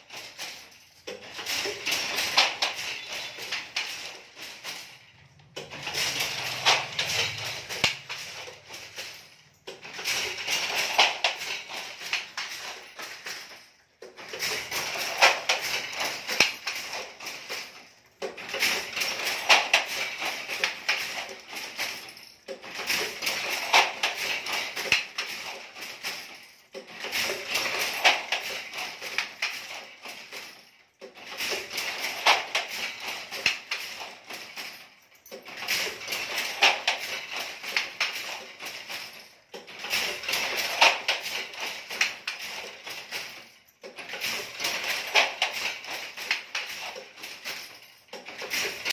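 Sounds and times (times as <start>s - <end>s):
wooden handloom clattering: 0.0s - 48.9s.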